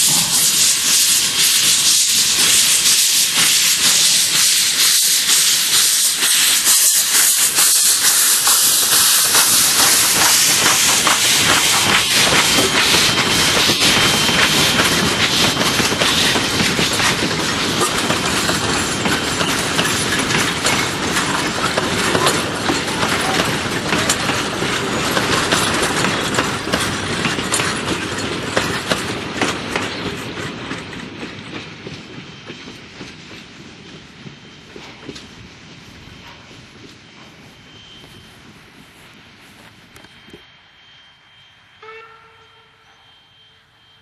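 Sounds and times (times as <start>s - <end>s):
train wheels clattering on rails: 0.0s - 40.5s.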